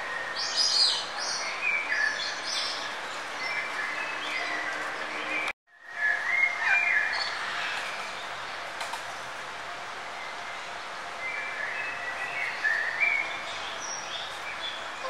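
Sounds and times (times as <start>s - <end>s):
birds chirping and singing: 0.0s - 8.2s
steady background noise: 0.0s - 15.0s.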